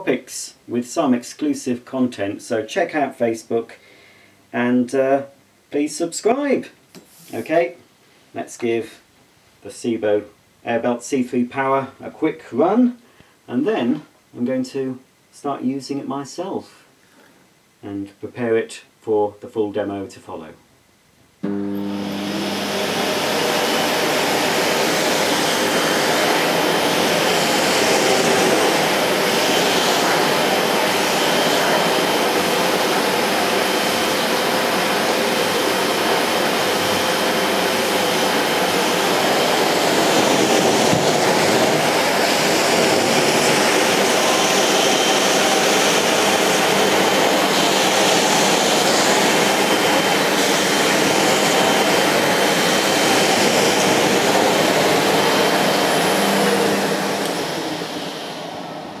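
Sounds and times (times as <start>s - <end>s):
vacuum cleaner running on carpet: 21.4s - 59.0s.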